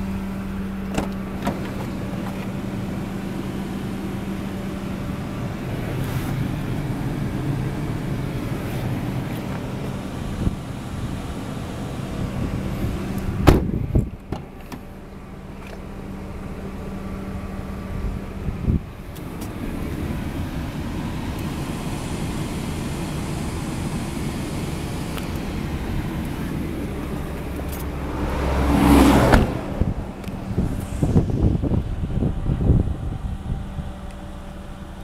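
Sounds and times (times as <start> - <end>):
low car cabin hum: 0.0 - 35.0
sharp thump: 13.4 - 14.5, 29.2 - 30.0.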